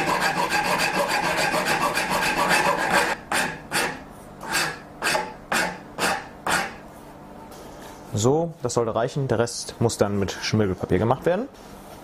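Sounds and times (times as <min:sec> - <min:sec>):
file scraping on horn: 0:00.0 - 0:06.8.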